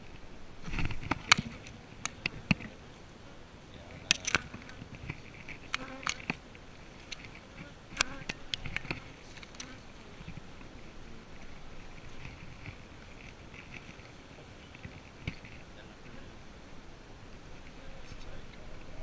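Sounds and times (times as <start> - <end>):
hive tool clicking and scraping: 0.0 - 2.8, 3.9 - 10.7, 11.4 - 15.6
honeybees buzzing: 0.0 - 19.0.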